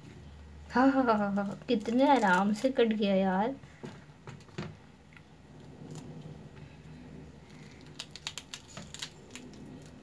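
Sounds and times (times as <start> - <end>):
low steady hum: 0.0 - 10.0
pomegranate seeds clicking in colander: 7.8 - 10.0.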